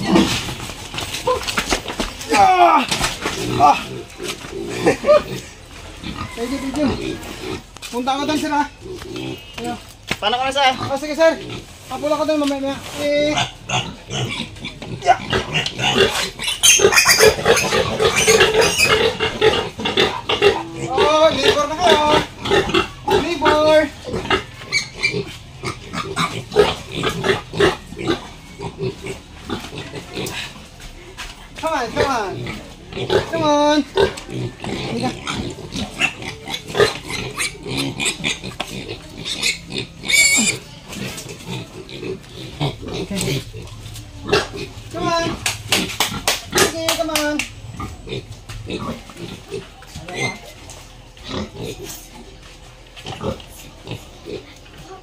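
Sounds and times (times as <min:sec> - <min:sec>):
piglets squealing: 0:02.3 - 0:09.9, 0:13.2 - 0:30.6, 0:31.9 - 0:46.8, 0:47.7 - 0:50.7
piglet high squeal: 0:14.2 - 0:19.3, 0:24.4 - 0:25.3, 0:39.2 - 0:40.7.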